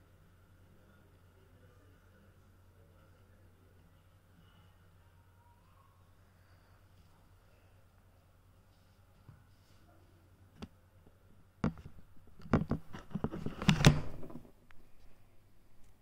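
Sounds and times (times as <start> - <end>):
phone handling knocks and clicks: 11.6 - 14.4
rustling: 11.8 - 16.0.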